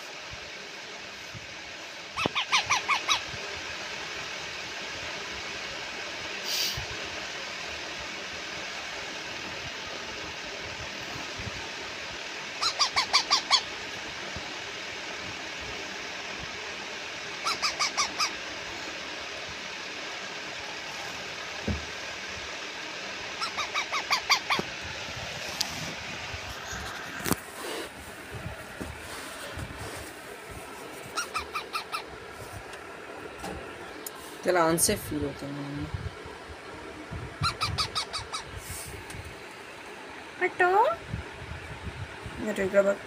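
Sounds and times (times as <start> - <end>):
parrot chick squawking: 2.1 - 3.3, 12.6 - 13.7, 17.4 - 18.4, 23.3 - 24.7, 31.1 - 32.2, 37.4 - 38.6
steady hiss: 3.2 - 12.8, 13.4 - 37.4, 38.0 - 43.0
brief hiss: 6.4 - 6.9
dull thump: 21.6 - 21.8.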